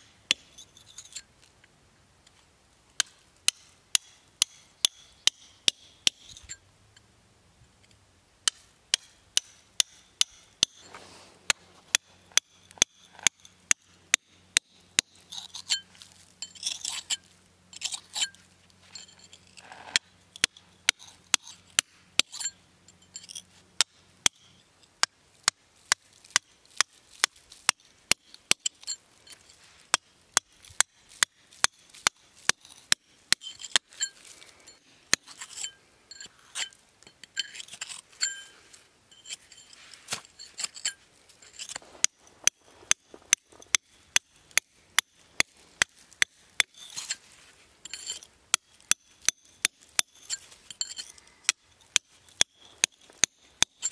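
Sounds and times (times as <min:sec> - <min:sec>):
hammer striking steel chisel: 0:03.0 - 0:06.6, 0:08.5 - 0:15.8, 0:47.9 - 0:53.9.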